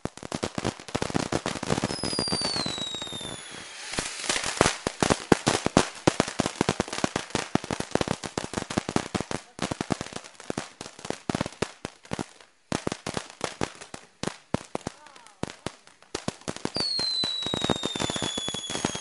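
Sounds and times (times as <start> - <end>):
firework crackling pops: 0.0 - 19.0
falling firework whistle: 1.8 - 5.0, 16.7 - 19.0.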